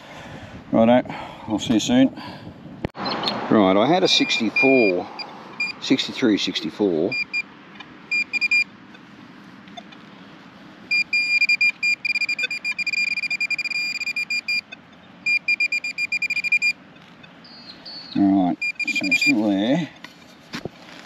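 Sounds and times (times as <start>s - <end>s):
metal detector beeping: 4.2s - 5.9s, 7.1s - 7.4s, 8.1s - 8.7s, 10.9s - 16.8s, 18.5s - 19.5s.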